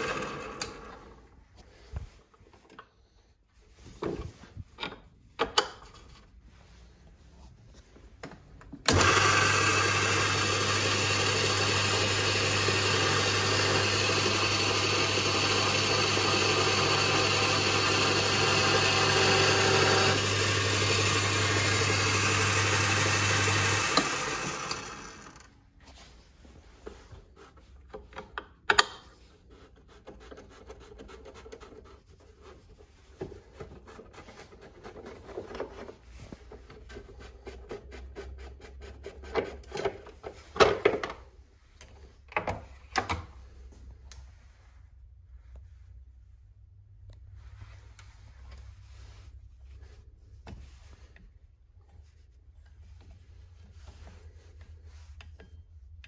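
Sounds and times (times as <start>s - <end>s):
hand rubbing rubber belt: 25.5s - 28.2s, 29.0s - 40.5s, 43.6s - 55.8s.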